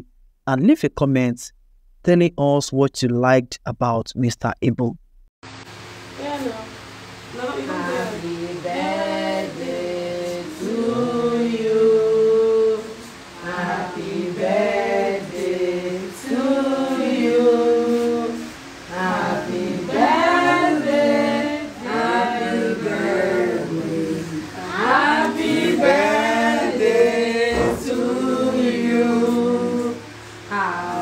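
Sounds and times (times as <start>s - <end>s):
group singing without instruments: 7.6s - 31.0s.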